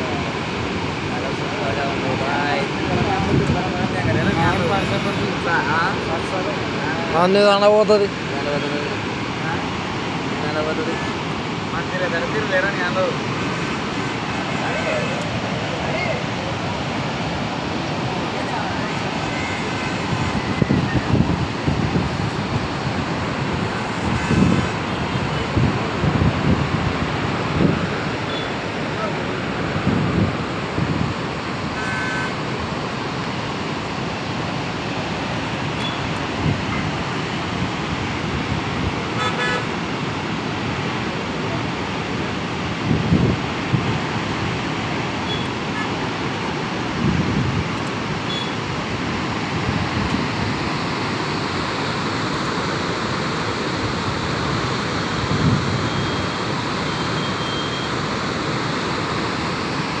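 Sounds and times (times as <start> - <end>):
water rushing through spillway: 0.0 - 60.0.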